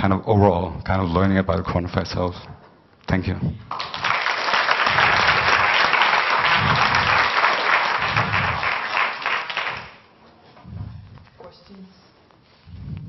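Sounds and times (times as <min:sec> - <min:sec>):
audience applauding: 0:03.7 - 0:10.1.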